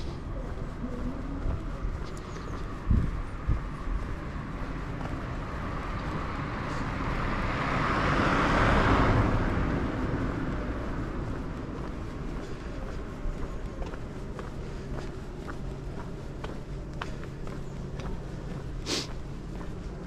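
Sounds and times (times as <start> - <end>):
vehicle passing by: 0.0 - 15.2
steady low rumble: 0.0 - 20.0.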